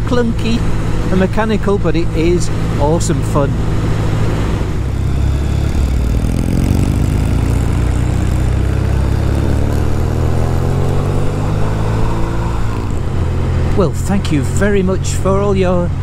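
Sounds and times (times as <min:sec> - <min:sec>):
motorcycle engine pulling: 0:03.8 - 0:13.8.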